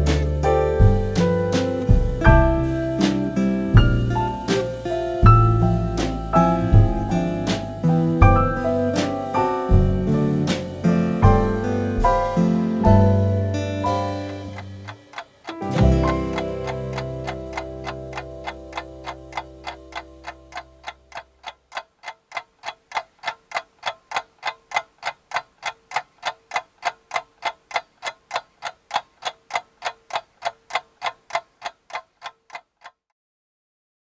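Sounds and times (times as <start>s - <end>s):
music: 0.0s - 21.3s
clock ticking: 0.0s - 33.0s.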